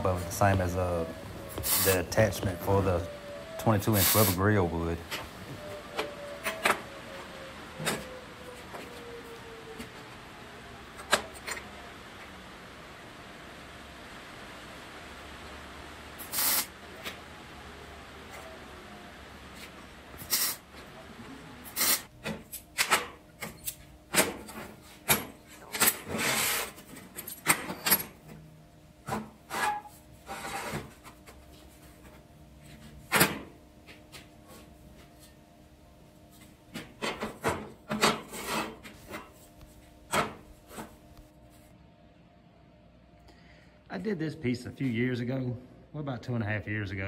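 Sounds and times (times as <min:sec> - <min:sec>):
steel plates scraping: 0:38.0 - 0:39.3.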